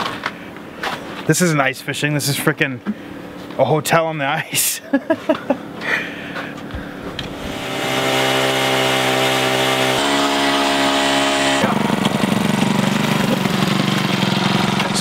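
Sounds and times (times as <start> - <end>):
ice auger boring through ice: 7.3 - 15.0.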